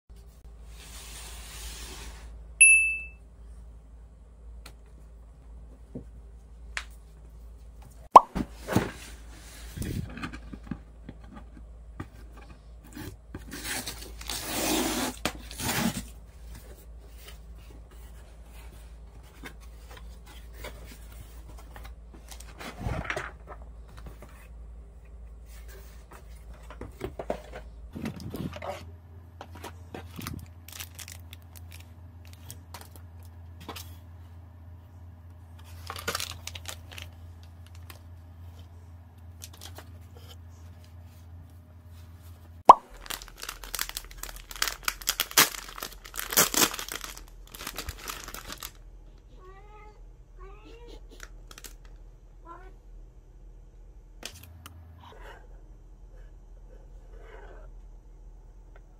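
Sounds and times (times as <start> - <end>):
packing tape tearing: 42.9 - 48.8.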